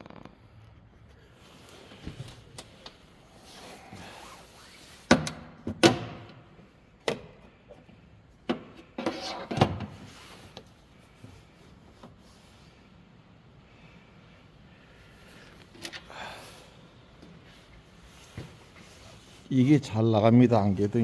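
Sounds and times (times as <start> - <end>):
car parts and tools clunking: 5.1 - 10.6.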